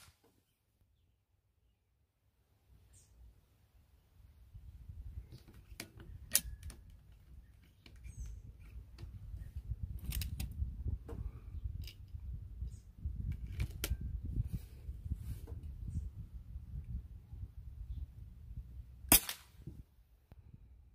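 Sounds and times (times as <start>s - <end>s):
air rifle metal clicks: 5.3s - 9.2s.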